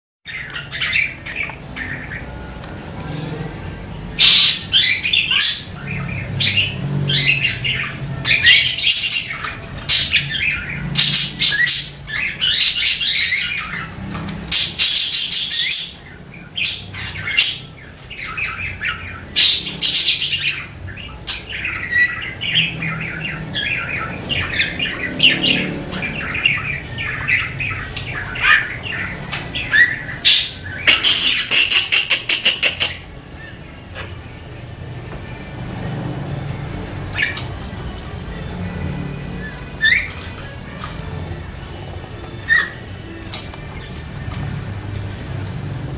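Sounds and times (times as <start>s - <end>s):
budgerigar warbling: 4.1s - 13.9s, 16.6s - 33.1s.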